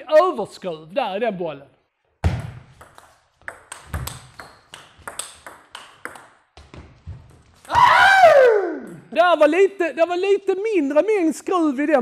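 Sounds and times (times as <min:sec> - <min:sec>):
table tennis ball clicking: 0:02.8 - 0:06.4
loud shout: 0:07.7 - 0:08.9.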